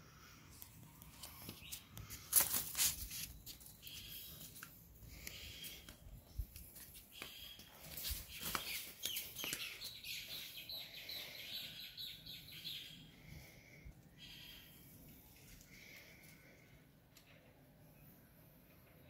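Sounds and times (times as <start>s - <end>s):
birds chirping and calling: 7.1s - 16.6s.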